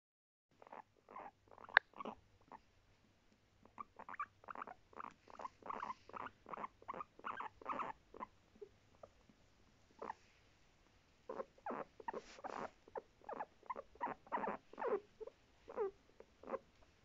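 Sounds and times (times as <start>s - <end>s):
guinea pig calling: 0.6s - 2.6s, 3.7s - 8.3s, 10.0s - 10.3s, 11.3s - 16.6s.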